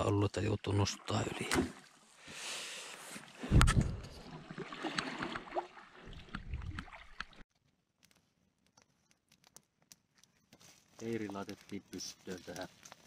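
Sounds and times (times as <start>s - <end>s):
water splashing and gurgling: 0.6s - 2.2s, 3.0s - 7.4s
campfire crackling: 7.3s - 13.0s.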